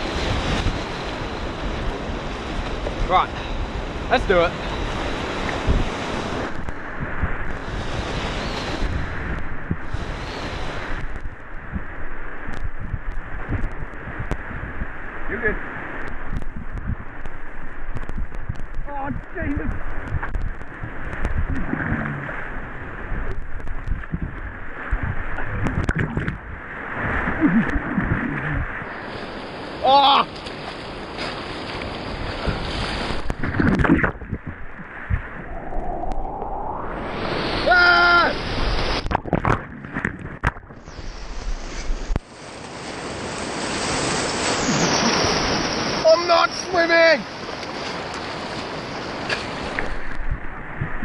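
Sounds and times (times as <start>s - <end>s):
whitewater rushing: 0.0s - 12.5s, 18.8s - 51.0s
water splashes: 0.0s - 51.0s
person shouting: 37.6s - 38.4s.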